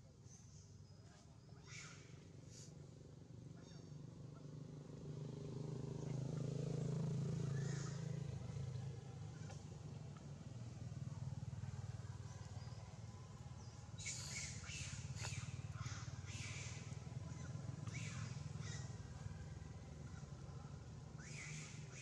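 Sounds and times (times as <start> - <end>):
animal chirping calls: 14.0 - 19.0.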